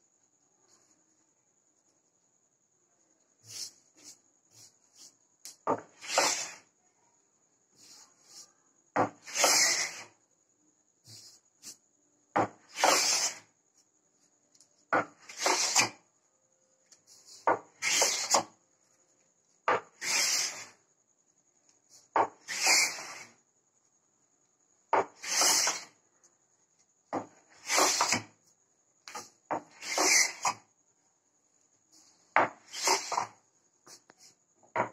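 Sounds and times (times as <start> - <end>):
wooden hand plane shaving a board: 9.2 - 10.1, 12.7 - 13.4, 15.2 - 15.9, 17.8 - 18.4, 20.0 - 20.7, 22.5 - 23.2, 25.2 - 25.9, 27.6 - 28.2, 29.8 - 30.5.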